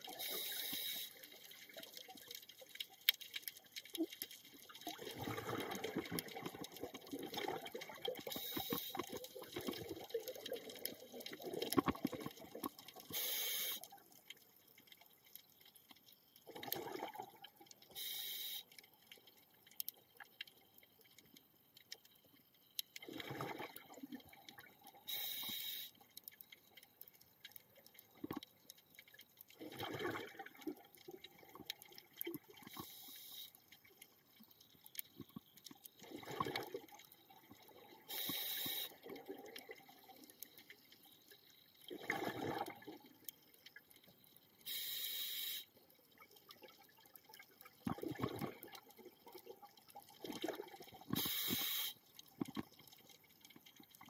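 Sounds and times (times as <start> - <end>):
regulator air hiss: 0.2 - 1.2, 13.1 - 13.8, 18.0 - 18.7, 25.1 - 26.0, 38.1 - 39.0, 44.7 - 45.7, 51.2 - 52.0
exhaled bubbles gurgling: 3.5 - 14.2, 16.4 - 18.1, 23.0 - 25.8, 29.4 - 34.4, 35.2 - 43.9, 46.1 - 54.0.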